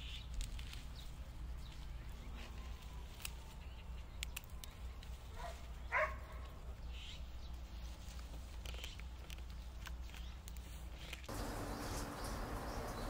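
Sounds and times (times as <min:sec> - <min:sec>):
stems snapping and rustling: 0:00.0 - 0:06.6, 0:07.5 - 0:13.0
steady low hum: 0:11.3 - 0:13.0.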